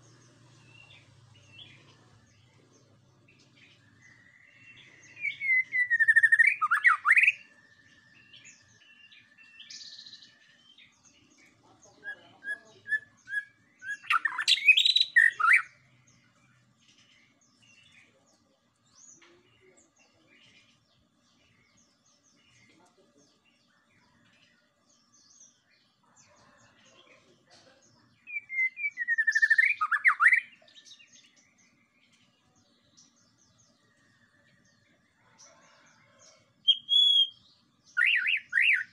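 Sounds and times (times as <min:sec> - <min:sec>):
bird singing sweeping whistles: 0:05.2 - 0:07.4, 0:28.3 - 0:30.5, 0:36.7 - 0:37.4.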